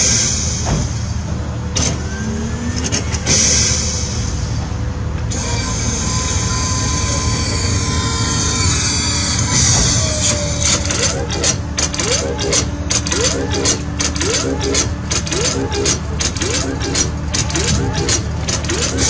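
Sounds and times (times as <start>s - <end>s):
robot toy motor humming: 5.3s - 19.0s
hissing bursts: 10.2s - 19.0s.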